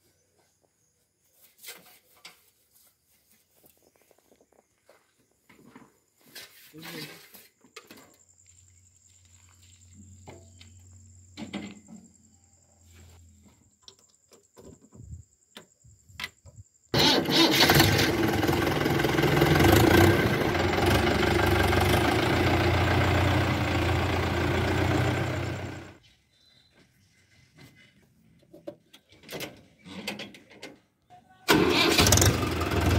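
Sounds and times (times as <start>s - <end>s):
tractor diesel engine running: 17.0s - 26.0s, 31.5s - 32.9s.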